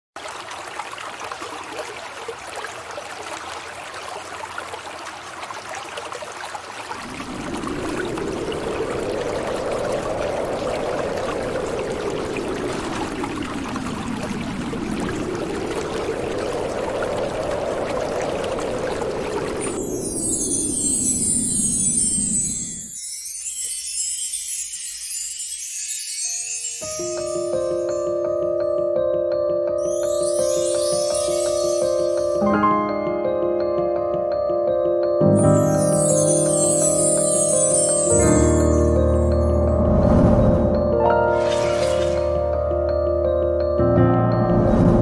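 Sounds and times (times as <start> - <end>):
rushing stream-like noise: 0.2 - 28.1, 35.5 - 39.6, 40.2 - 42.8
high sparkling chime tones: 19.5 - 28.4, 29.8 - 33.6, 35.2 - 39.8, 41.1 - 43.8.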